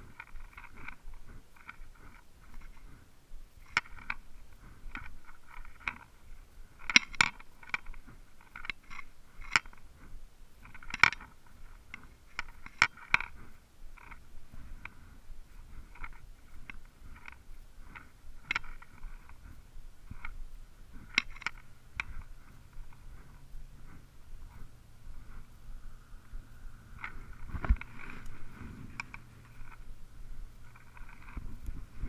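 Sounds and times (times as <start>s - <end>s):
rod and reel clicks: 0.0s - 32.0s.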